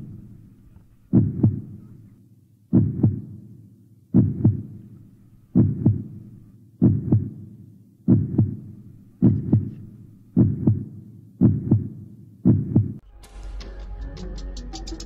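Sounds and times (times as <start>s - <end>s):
heartbeat thumps: 1.1s - 1.9s, 2.7s - 3.4s, 4.1s - 4.9s, 5.5s - 7.5s, 8.1s - 13.0s.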